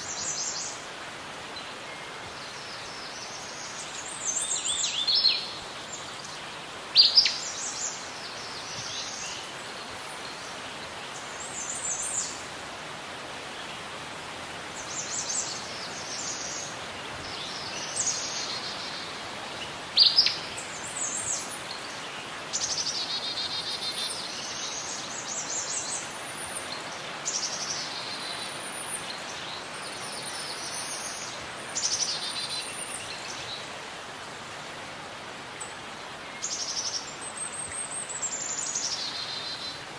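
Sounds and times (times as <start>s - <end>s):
steady background hiss: 0.0s - 39.9s
birds singing: 1.6s - 12.4s, 14.7s - 33.8s.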